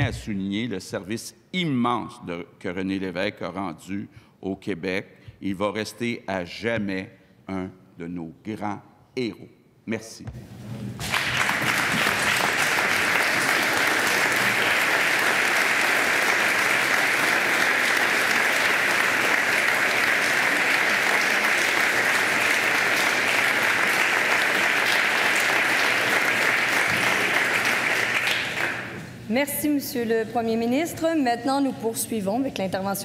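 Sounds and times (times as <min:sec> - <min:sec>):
crowd applauding: 0:11.0 - 0:29.1.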